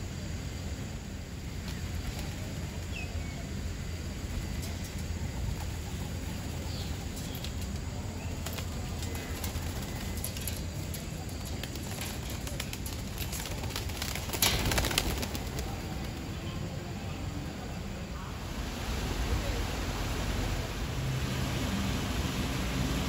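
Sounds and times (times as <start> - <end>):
low outdoor rumble: 0.0 - 23.0
pigeon wings flapping: 8.4 - 16.3.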